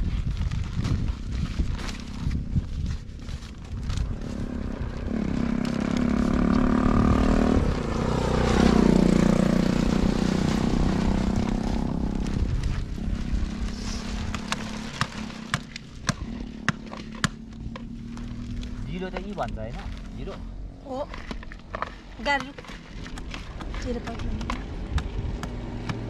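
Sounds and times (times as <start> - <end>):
vehicle passing by: 4.0 - 15.6.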